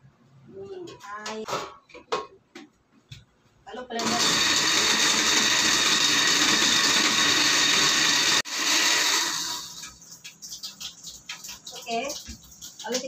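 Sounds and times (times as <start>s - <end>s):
blender running: 4.0s - 9.8s.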